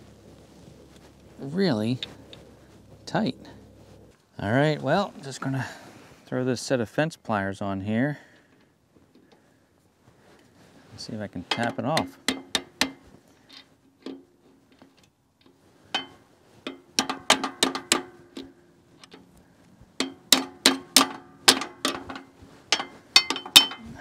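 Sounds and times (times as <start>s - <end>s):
pliers tapping on metal: 20.0s - 23.8s.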